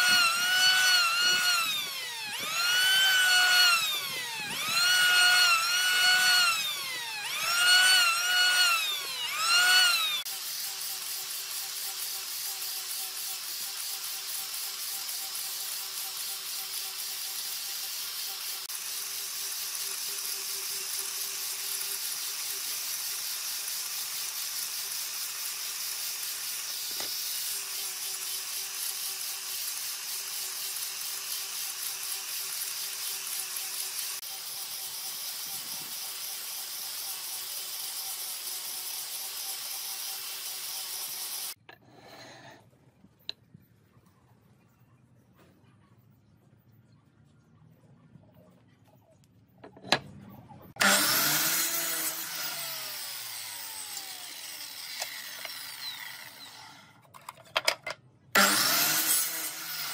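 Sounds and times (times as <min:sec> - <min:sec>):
sanding disc hissing on wood: 0:00.0 - 0:41.6
angle grinder motor whine: 0:00.0 - 0:42.5, 0:50.8 - 0:57.0, 0:58.4 - 0:59.9.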